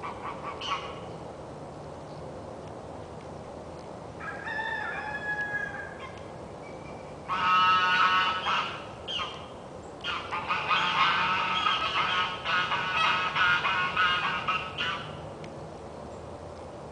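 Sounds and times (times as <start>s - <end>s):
farmyard fowl calls: 0.0s - 1.0s, 4.2s - 6.2s, 7.2s - 9.4s, 10.0s - 15.2s
rooster crowing: 4.2s - 6.1s.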